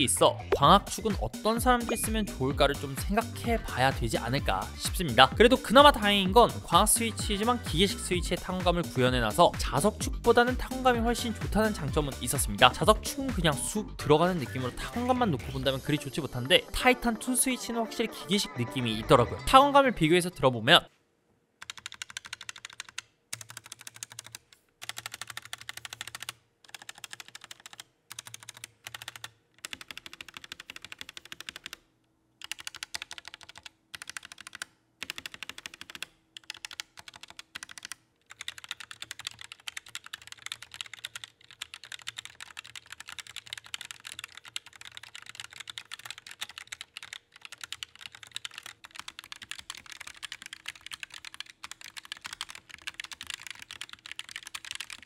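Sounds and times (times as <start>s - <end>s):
keyboard typing clicks: 21.6s - 31.8s, 32.4s - 55.0s.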